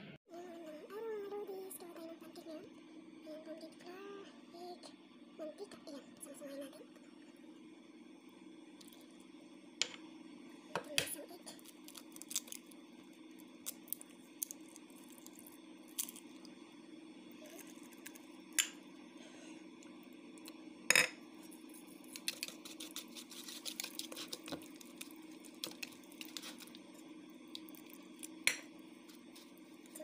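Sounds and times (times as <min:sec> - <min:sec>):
whisk scraping plastic bowl: 0:22.3 - 0:25.0.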